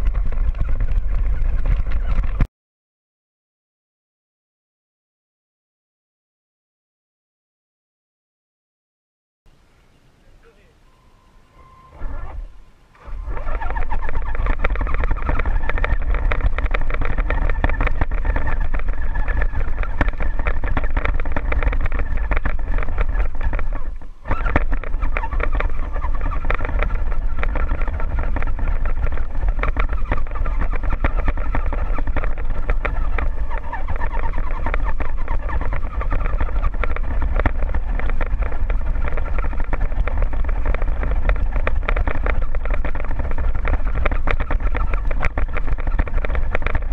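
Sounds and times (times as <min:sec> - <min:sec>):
drivetrain and body rattling: 0:00.0 - 0:02.5, 0:11.4 - 0:46.9
electric motor and gearbox whining: 0:11.3 - 0:46.9.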